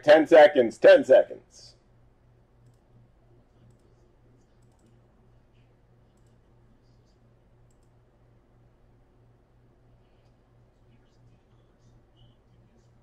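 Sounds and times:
steady low hum: 0.0 - 13.0
faint clicks: 2.6 - 2.9, 3.6 - 5.0, 5.6 - 6.4, 7.1 - 8.0.

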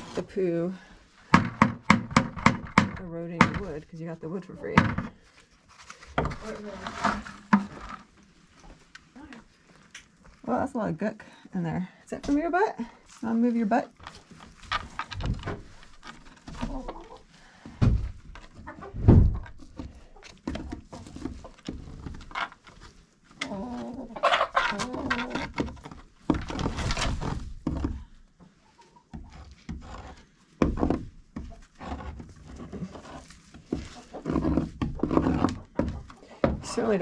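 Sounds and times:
chickens clucking: 16.7 - 17.3, 18.6 - 21.6, 23.4 - 25.4, 28.4 - 29.4.

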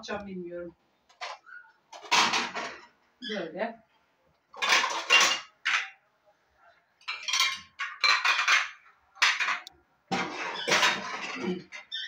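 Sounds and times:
dishes and cutlery clattering: 1.2 - 2.9, 4.6 - 6.0, 7.0 - 12.0.

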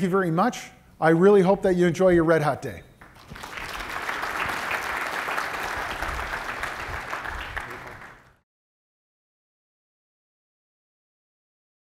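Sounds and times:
audience applauding: 3.0 - 8.4.

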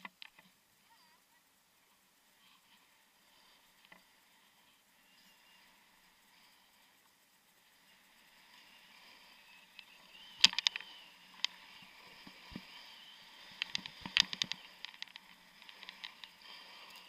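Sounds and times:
sharp clicks and knocks: 0.0 - 0.5, 9.8 - 11.6, 13.5 - 16.4
skis sliding on snow: 10.9 - 17.0.

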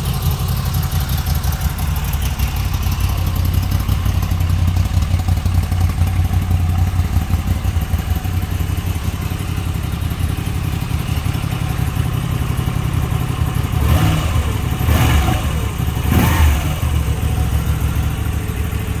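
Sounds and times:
motorcycle engine idling and revving: 0.0 - 19.0.

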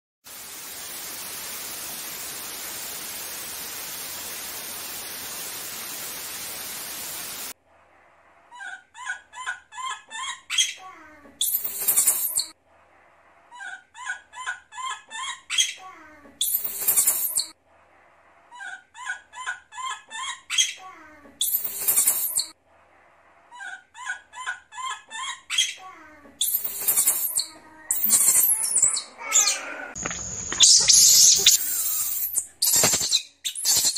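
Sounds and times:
static hiss: 0.3 - 7.6, 30.0 - 33.9
high squeaks and shrill screech: 11.4 - 12.6, 16.4 - 17.6, 21.4 - 22.6, 26.4 - 29.6, 30.5 - 33.9.

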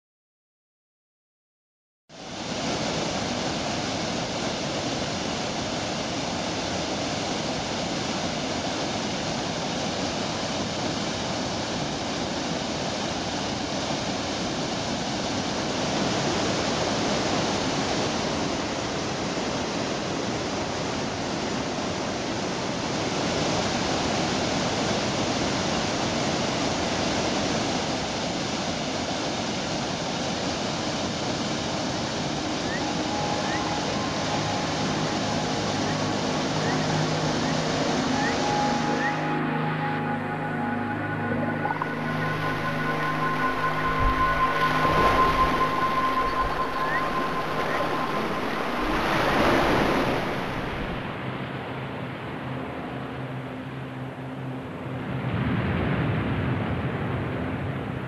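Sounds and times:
water rushing over rocks: 29.9 - 51.1.

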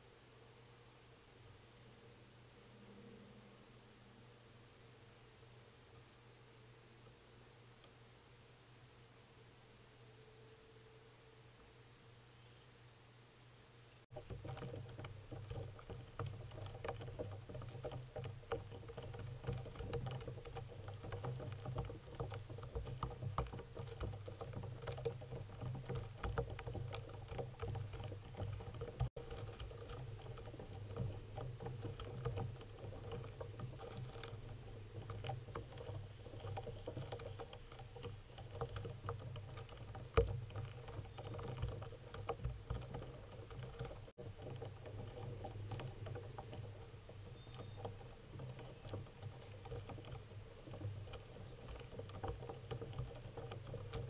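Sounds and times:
steady low hum: 0.0 - 14.3
pigeons pecking on wood: 14.1 - 54.0.

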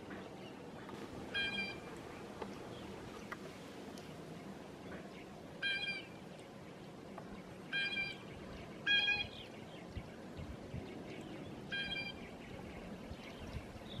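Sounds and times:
faint bird peeping: 0.1 - 14.0
blue jay harsh calls: 1.3 - 1.9, 5.6 - 6.2, 7.7 - 8.2, 8.8 - 9.5, 11.7 - 12.2.

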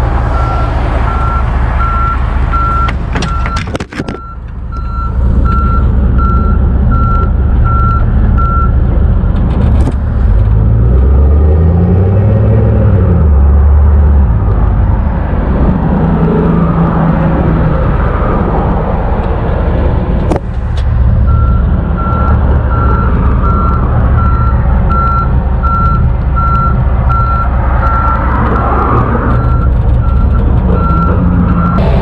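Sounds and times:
truck engine running: 0.0 - 11.0, 16.8 - 32.0
backup alarm beeping: 0.4 - 8.7.

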